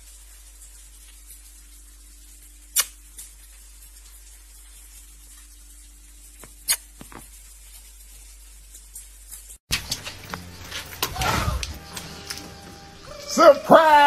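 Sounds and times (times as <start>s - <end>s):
kissing smacks: 2.8s - 3.0s, 6.7s - 6.9s.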